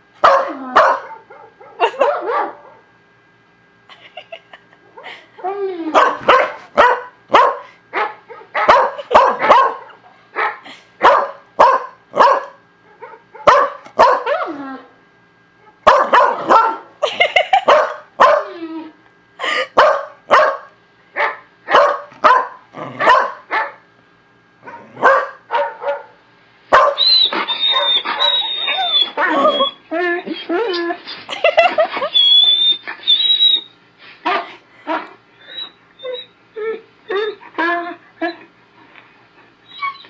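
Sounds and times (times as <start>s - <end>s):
dog barking: 0.2s - 2.8s, 6.0s - 14.4s, 15.6s - 16.9s, 17.7s - 18.5s, 19.8s - 23.8s, 24.6s - 27.1s, 27.7s - 28.3s.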